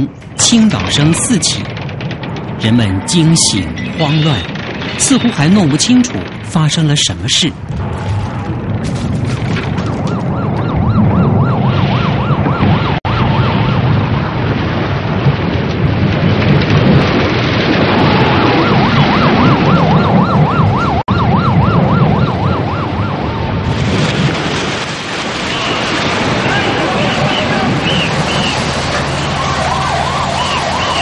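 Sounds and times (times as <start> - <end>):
loud low rumble: 0.0 - 31.0
wavering emergency siren: 9.3 - 15.9, 17.7 - 31.0.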